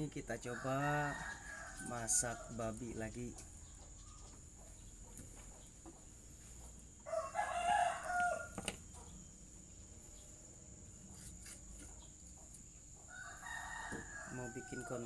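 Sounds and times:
rooster crowing: 0.4 - 2.8, 7.0 - 8.7, 13.0 - 15.0.

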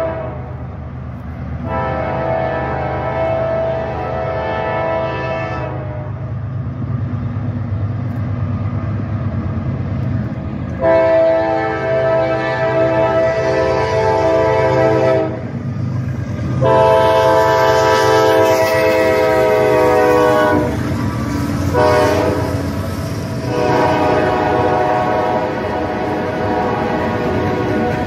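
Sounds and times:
locomotive air horn blasts: 0.0 - 0.6, 1.6 - 6.2, 10.8 - 15.5, 16.6 - 20.8, 21.7 - 22.6, 23.4 - 28.0
locomotive engine rumble: 0.0 - 28.0
train wheels on rails: 0.0 - 28.0.

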